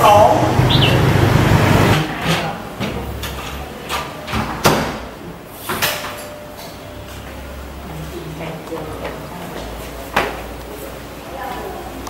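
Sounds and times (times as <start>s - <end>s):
low rumble: 0.0s - 2.0s.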